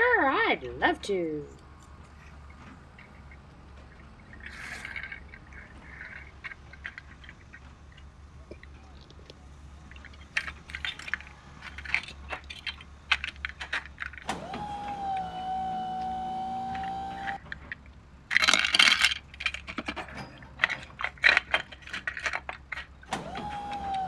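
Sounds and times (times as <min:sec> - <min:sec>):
plastic toy bricks clicking: 0:04.3 - 0:14.2, 0:17.7 - 0:23.1.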